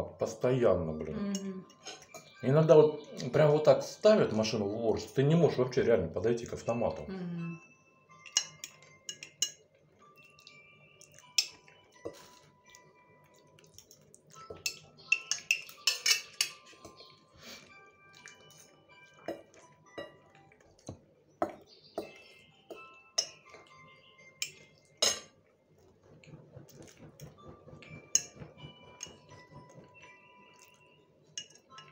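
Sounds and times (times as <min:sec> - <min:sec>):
fork clinking on glass plate: 0:08.2 - 0:09.6, 0:10.2 - 0:12.8, 0:14.4 - 0:17.1, 0:21.4 - 0:23.7, 0:24.4 - 0:25.4, 0:31.4 - 0:31.9.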